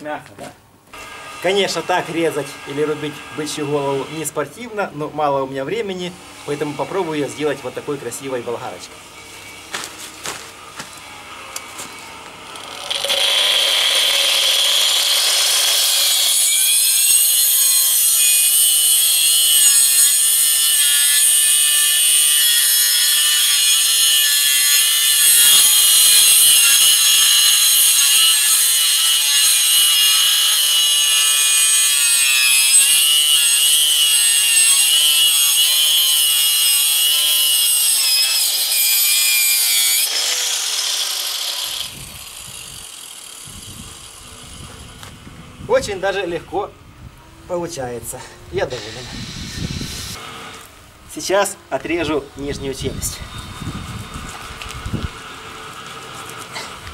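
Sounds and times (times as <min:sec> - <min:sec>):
angle grinder cutting bone: 0:09.4 - 0:44.8, 0:48.6 - 0:50.7.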